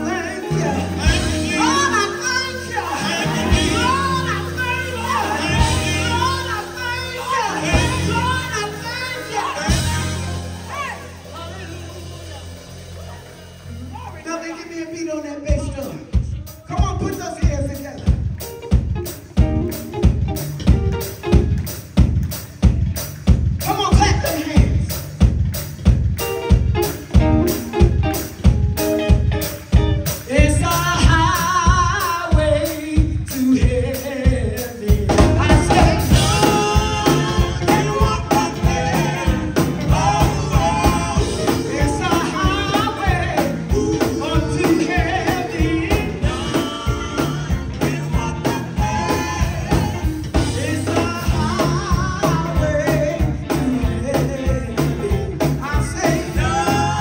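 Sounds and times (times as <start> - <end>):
electric guitar: 0.0 - 14.2, 17.8 - 57.0
electric bass: 0.0 - 14.7, 15.5 - 57.0
gospel singers: 0.0 - 17.2, 30.1 - 57.0
drum beat: 15.5 - 57.0.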